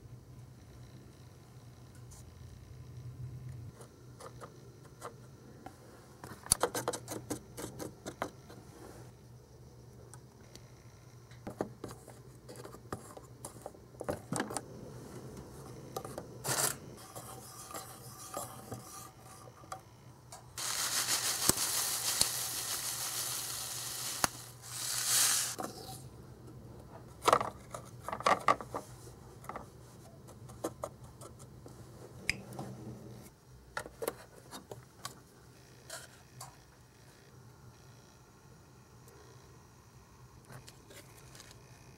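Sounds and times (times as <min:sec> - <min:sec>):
spatula scraping a pan: 0:16.5 - 0:19.5.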